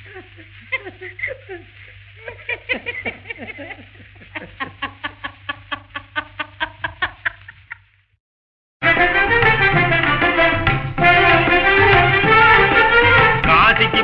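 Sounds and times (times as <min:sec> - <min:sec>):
man laughing: 0:00.0 - 0:07.9
orchestral music: 0:08.8 - 0:14.0.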